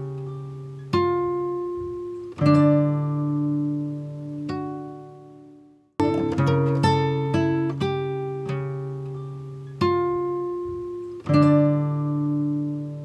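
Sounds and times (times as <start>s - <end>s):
acoustic guitar picking: 0.0s - 13.0s.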